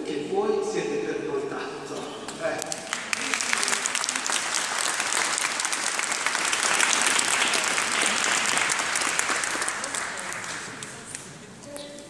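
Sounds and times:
crowd applauding: 0:02.4 - 0:11.3.

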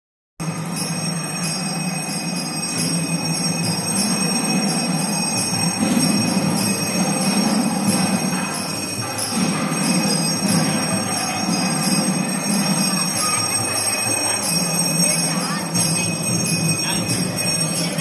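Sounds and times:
rhythmic metallic jingling: 0:00.4 - 0:18.0.

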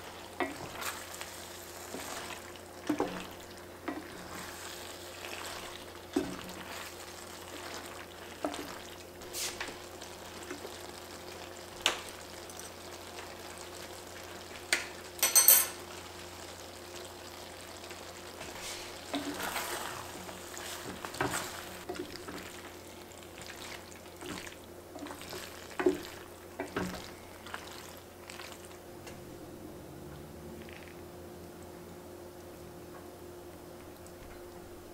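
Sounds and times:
wooden spoon stirring pasta: 0:00.0 - 0:10.8, 0:18.3 - 0:28.8
low steady hum: 0:00.0 - 0:34.9.

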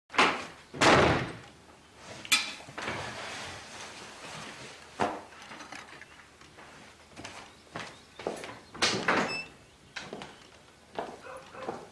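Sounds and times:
chair scraping: 0:02.0 - 0:06.1.

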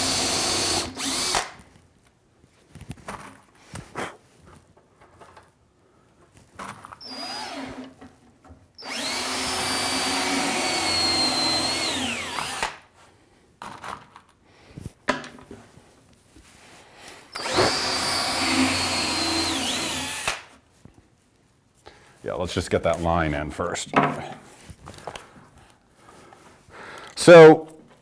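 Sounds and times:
cordless drill into wood: 0:00.0 - 0:01.6, 0:06.9 - 0:08.0, 0:08.8 - 0:12.9, 0:17.3 - 0:20.5.

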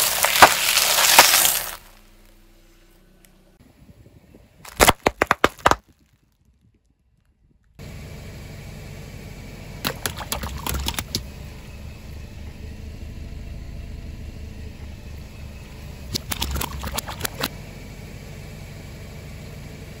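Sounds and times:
objects crushed under tyre popping: 0:00.0 - 0:02.4, 0:04.6 - 0:06.7, 0:16.1 - 0:17.5
car engine running: 0:00.0 - 0:05.8, 0:07.3 - 0:20.0.

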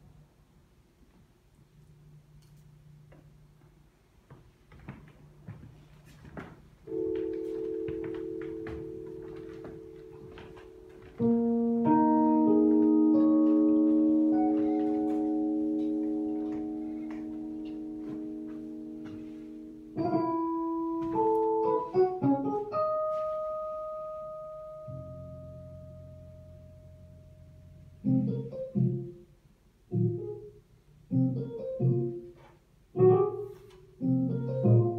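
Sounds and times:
improvised keyboard music: 0:06.8 - 0:29.3, 0:29.9 - 0:34.9.

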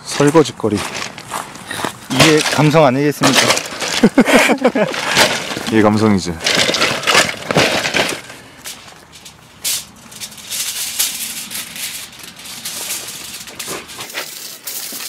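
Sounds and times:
bottles and cans clattering: 0:02.1 - 0:08.3, 0:09.1 - 0:15.0
foil crinkling and rustling: 0:02.1 - 0:15.0.

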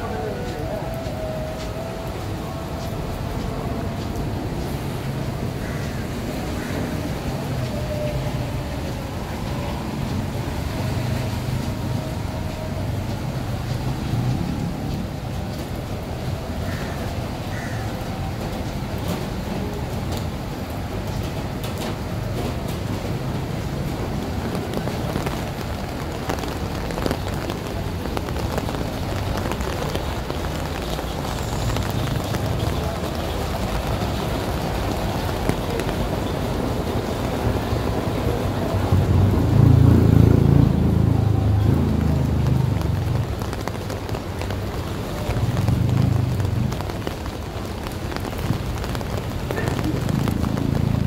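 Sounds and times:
rain on pavement: 0:00.0 - 0:51.0
traffic on wet road: 0:00.0 - 0:51.0.

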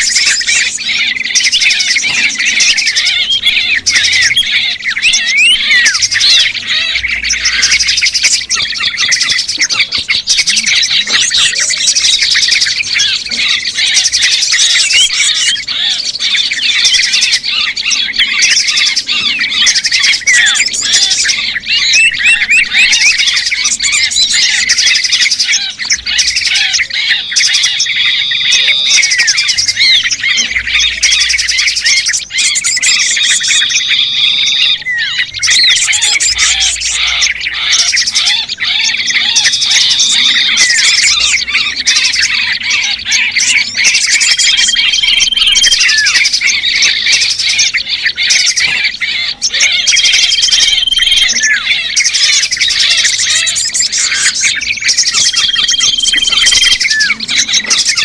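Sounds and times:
small birds chattering: 0:00.0 - 0:58.0
held whistle: 0:49.5 - 0:57.3.

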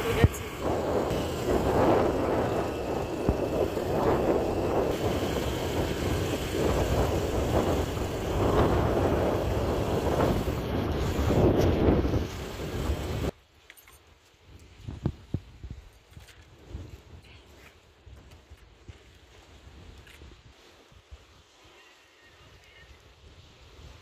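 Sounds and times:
motorbike engine running: 0:00.0 - 0:13.3
wind buffeting microphone: 0:00.0 - 0:13.3, 0:14.4 - 0:17.2.

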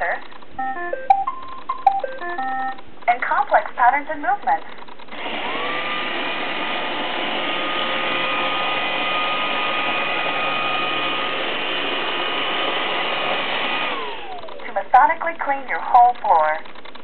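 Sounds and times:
robot vacuum whirring: 0:05.1 - 0:14.8.

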